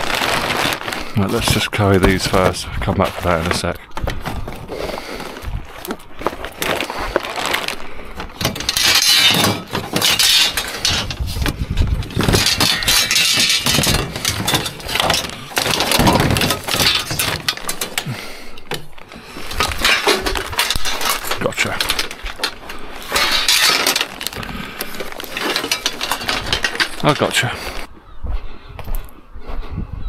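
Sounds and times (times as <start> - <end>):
scrap metal clattering: 8.3 - 27.9.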